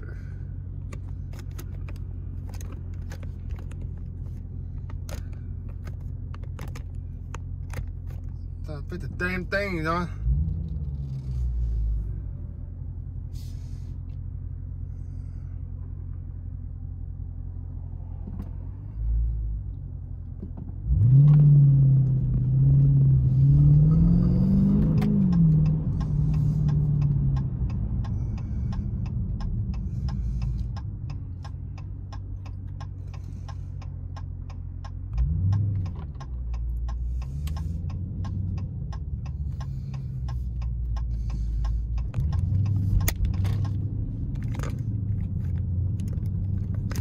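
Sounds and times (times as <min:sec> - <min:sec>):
car engine rumbling and accelerating: 0:00.0 - 0:47.0.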